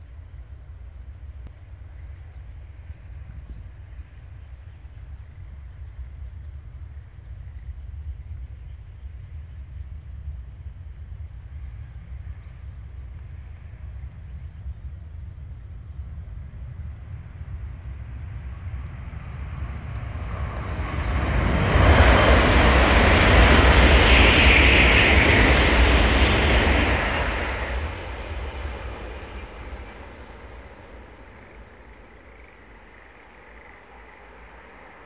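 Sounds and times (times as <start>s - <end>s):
high-speed train passing: 15.3s - 35.0s.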